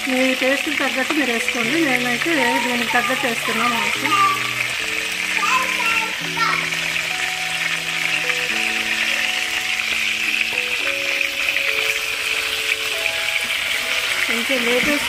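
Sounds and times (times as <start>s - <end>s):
eggplants sizzling in oil: 0.0s - 15.0s
slow background music: 0.0s - 15.0s.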